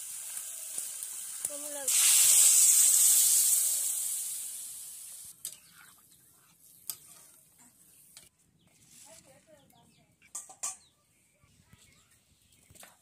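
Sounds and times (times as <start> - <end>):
loud sizzle of hot oil: 0.0 - 5.6.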